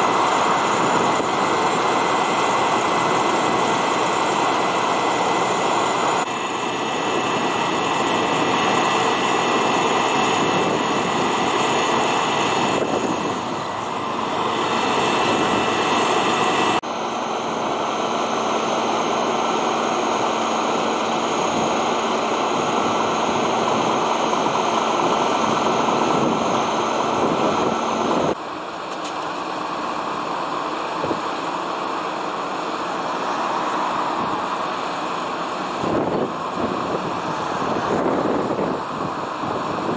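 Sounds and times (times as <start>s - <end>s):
diesel engine drone: 0.0s - 39.9s.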